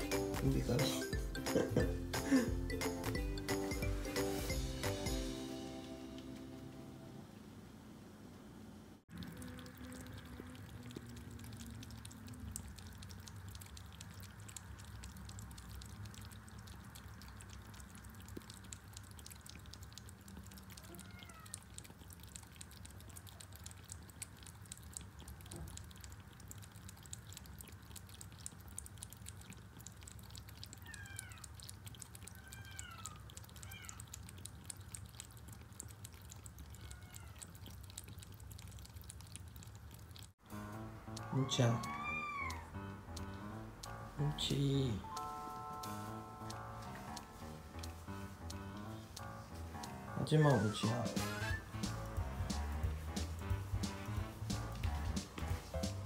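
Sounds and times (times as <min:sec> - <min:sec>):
kittens lapping water: 0:00.0 - 0:05.3, 0:09.0 - 0:56.0
faint kitten mews: 0:41.3 - 0:42.7, 0:50.2 - 0:51.7.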